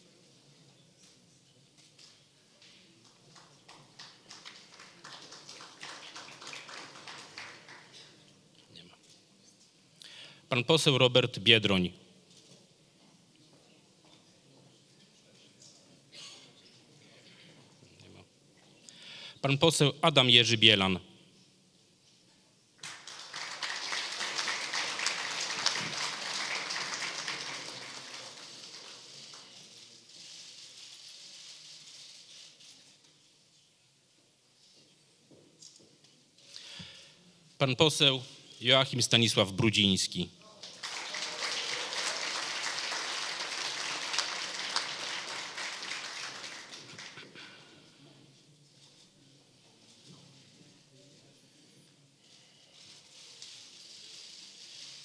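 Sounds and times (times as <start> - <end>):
audience applauding: 3.4 - 8.2, 22.8 - 29.6, 40.6 - 47.6.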